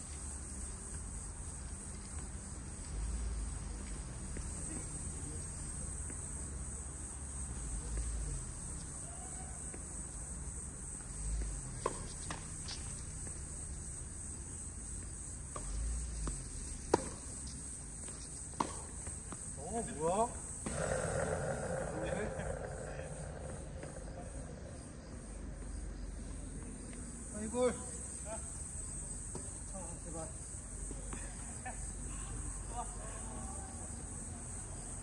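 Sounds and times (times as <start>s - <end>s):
crickets chirring: 0.0s - 35.0s
low rumble: 20.7s - 25.9s.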